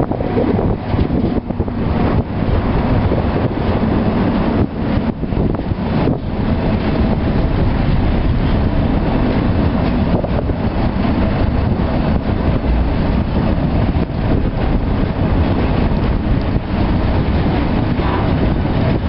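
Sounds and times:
train wheels rumbling on rails: 0.0 - 19.0
wind buffeting microphone: 0.0 - 19.0.

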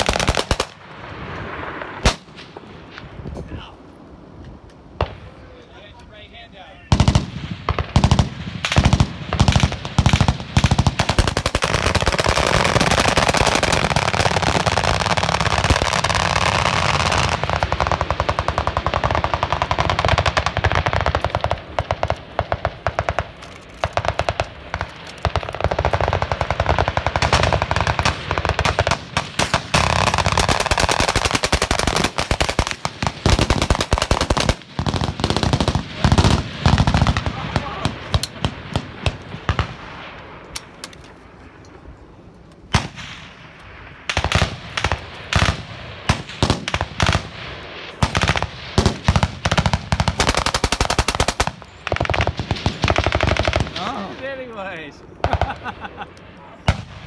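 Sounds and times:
machine guns firing: 6.9 - 39.9, 44.1 - 54.2.

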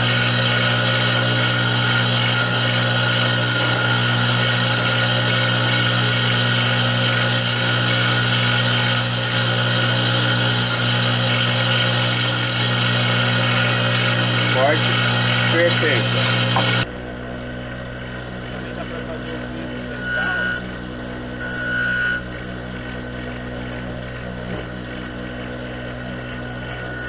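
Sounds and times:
chisel scraping spinning wood: 0.0 - 16.9
lathe motor hum: 0.0 - 16.9, 17.6 - 27.0.

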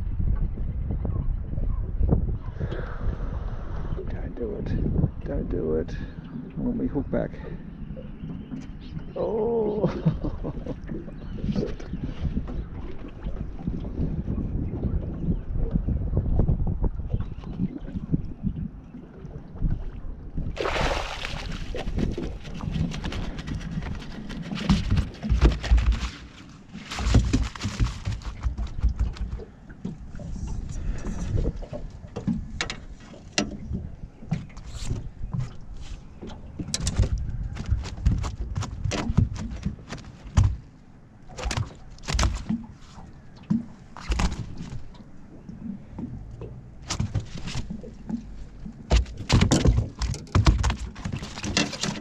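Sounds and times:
fish flapping on deck: 20.6 - 30.0, 36.6 - 40.7, 41.3 - 45.0, 46.8 - 52.0
thumps and knocks on boat deck: 27.0 - 30.0, 36.6 - 40.7, 45.9 - 52.0.

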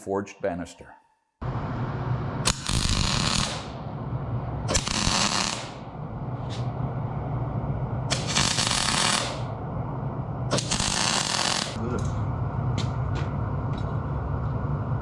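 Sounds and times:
steady low hum: 1.4 - 15.0
welding arc crackling: 2.4 - 3.8, 4.7 - 6.0, 8.1 - 9.6, 10.5 - 11.8.

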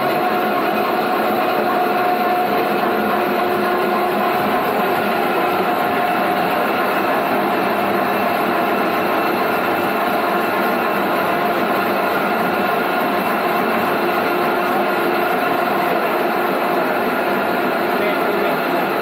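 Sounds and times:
pulping machine running: 0.0 - 19.0.

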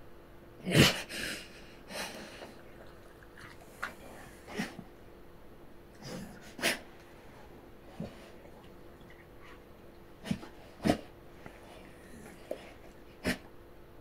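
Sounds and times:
dog snorting and huffing: 3.4 - 4.9, 10.2 - 13.5.

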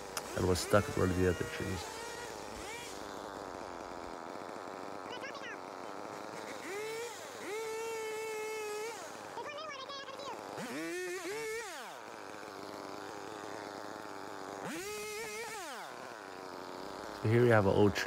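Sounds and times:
small two-stroke engine revving: 0.0 - 18.0.

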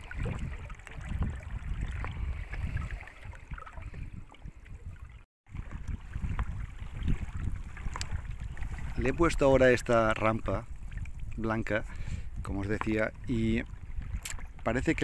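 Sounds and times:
water swishing and gurgling: 0.0 - 15.0.

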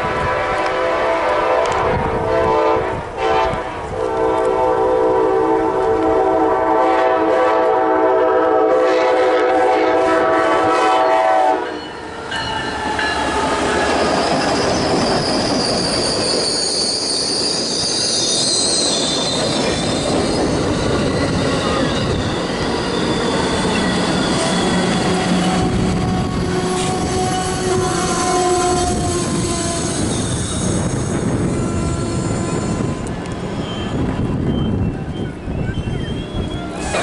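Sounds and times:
train air horn chord: 0.0 - 11.9, 24.9 - 30.0
train wheels rumbling on rail: 0.0 - 37.0
high metallic squeal: 11.0 - 37.0.

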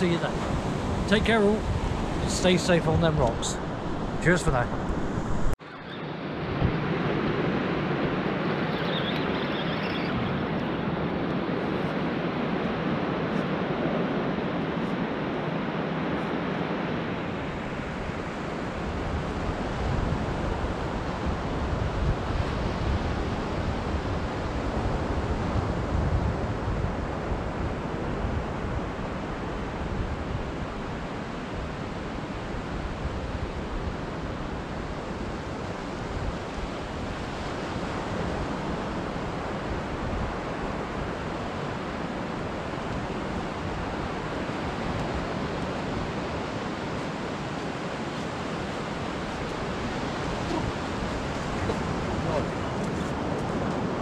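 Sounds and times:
sea surf washing on shore: 0.0 - 5.6, 6.2 - 54.0
wind buffeting microphone: 0.0 - 5.6, 17.4 - 54.0.

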